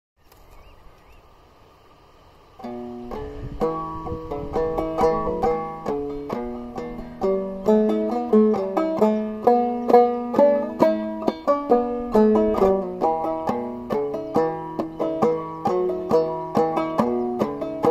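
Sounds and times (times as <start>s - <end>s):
faint background hiss: 0.2s - 17.9s
banjo playing march tune: 2.6s - 17.9s.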